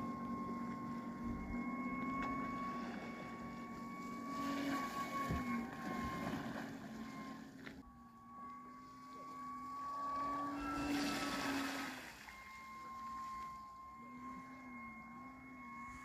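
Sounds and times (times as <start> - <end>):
hydrofoil whistling: 0.0 - 16.0.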